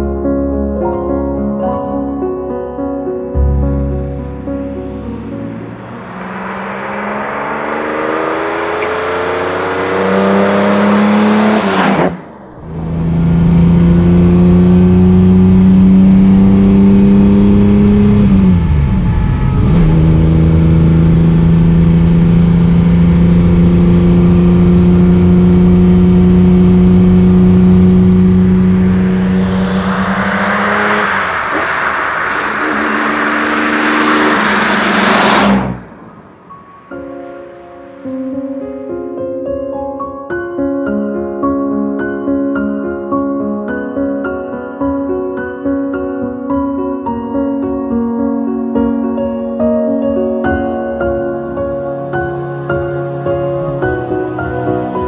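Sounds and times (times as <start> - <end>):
car engine drone: 3.4 - 38.8
car passing close by: 3.4 - 38.8.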